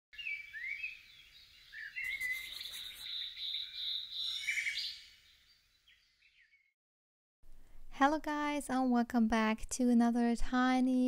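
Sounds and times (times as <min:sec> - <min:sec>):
high bird-like chirps: 0:00.2 - 0:06.6.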